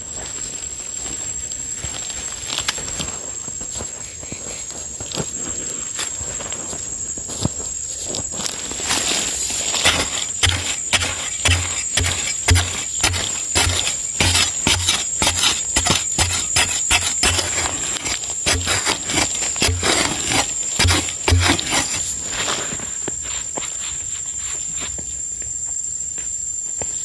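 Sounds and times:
digging blade thudding into soil: 9.8s - 22.2s.

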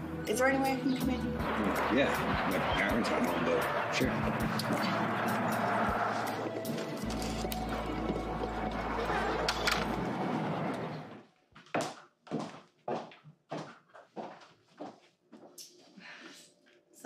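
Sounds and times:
loud dense din: 1.4s - 6.4s
footsteps: 4.2s - 16.8s.

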